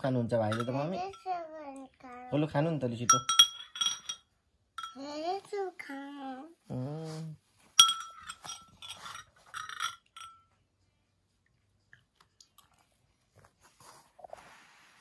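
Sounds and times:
person speaking: 0.0s - 1.4s
metal spoon clinking on glass bowl: 0.4s - 1.3s, 3.1s - 5.0s, 7.8s - 10.5s.

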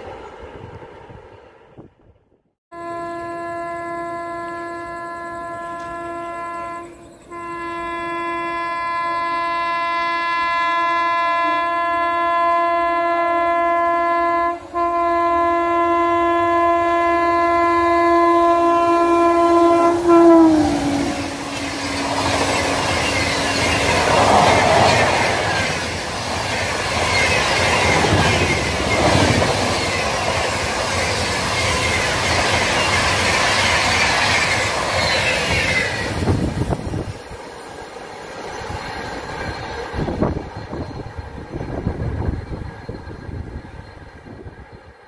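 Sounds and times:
locomotive horn blasts: 2.7s - 25.4s.

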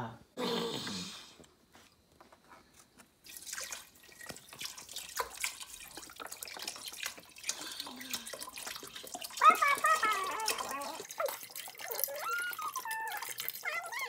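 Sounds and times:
liquid pouring into a pot: 3.2s - 13.9s.

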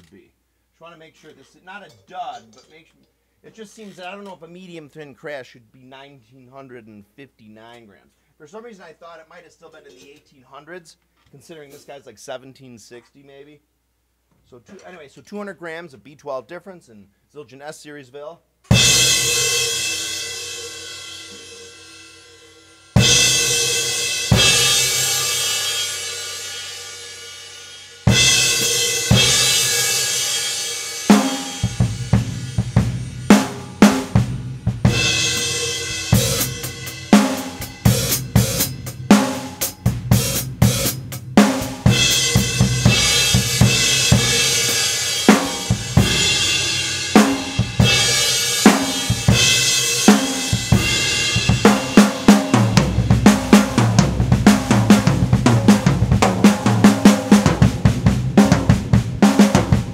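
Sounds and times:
snare and bass drum beat: 28.1s - 30.3s, 31.1s - 59.9s.

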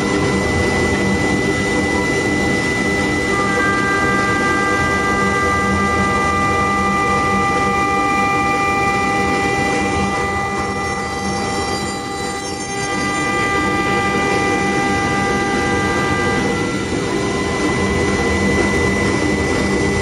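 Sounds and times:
whining machine tones: 0.0s - 20.0s
wood lathe machine noise: 3.2s - 18.3s.

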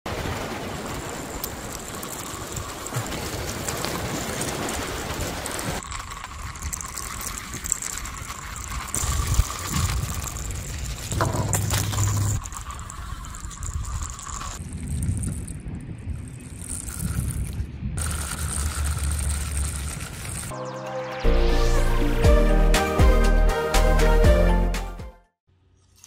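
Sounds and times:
rolling and rattling: 0.8s - 20.5s
toy motor whine: 5.8s - 14.6s, 18.0s - 20.5s.

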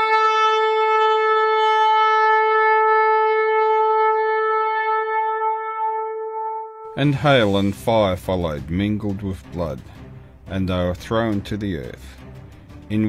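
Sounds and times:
long horn blast: 0.0s - 8.1s.

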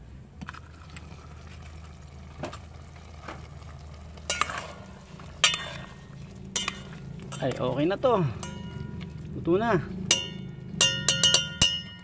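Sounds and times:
pot simmering: 0.0s - 12.0s
metal utensil clinking on pot: 4.3s - 4.8s, 5.4s - 7.6s, 8.4s - 9.1s, 10.1s - 12.0s.

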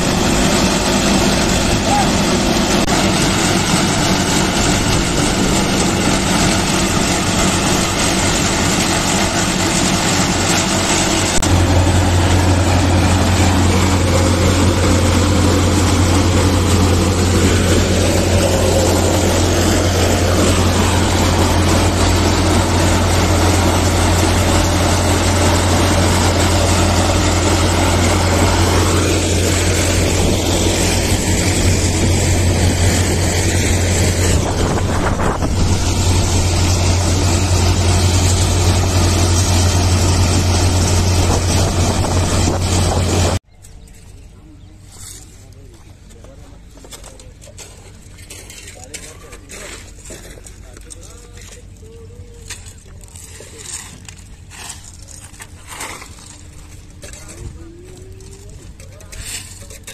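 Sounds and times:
deep strong hum: 0.0s - 43.8s
asphalt mixing plant drone: 0.0s - 59.9s.

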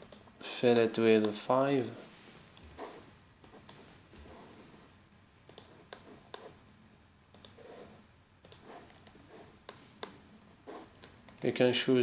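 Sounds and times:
computer mouse clicks: 5.5s - 6.6s, 7.3s - 7.8s, 8.4s - 10.2s.

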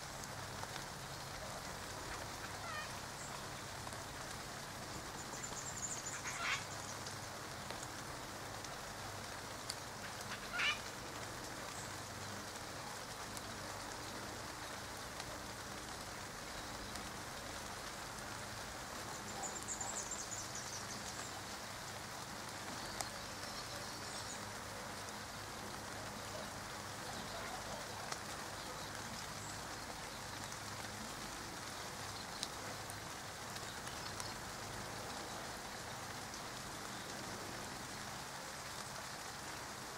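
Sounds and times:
light rain pattering: 0.0s - 39.9s
bird calls: 1.9s - 3.7s, 5.2s - 7.2s, 10.0s - 10.9s
high bird trills: 2.5s - 3.3s, 5.8s - 6.8s, 10.3s - 10.8s.

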